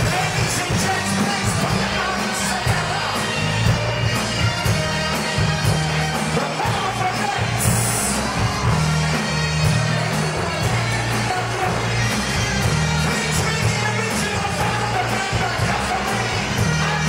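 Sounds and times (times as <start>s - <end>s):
female vocal group singing: 0.0s - 6.6s
band playing: 0.0s - 17.0s
bass line: 0.0s - 17.0s
drum beat: 0.0s - 17.0s.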